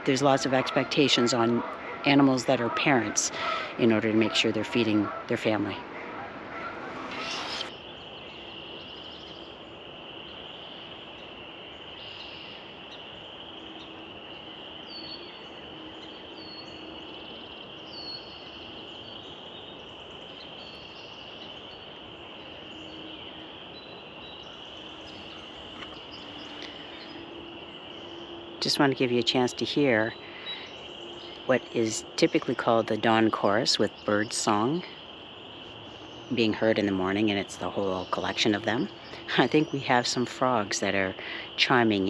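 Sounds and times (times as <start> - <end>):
frogs calling: 0.0 - 42.0
short falling bird calls: 3.1 - 7.8.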